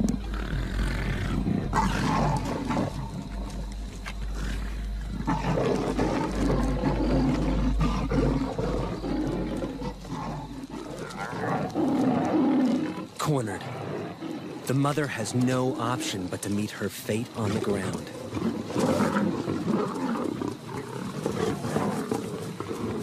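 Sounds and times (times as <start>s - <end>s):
steady low hum: 0.0s - 18.2s
lions growling: 0.0s - 23.0s.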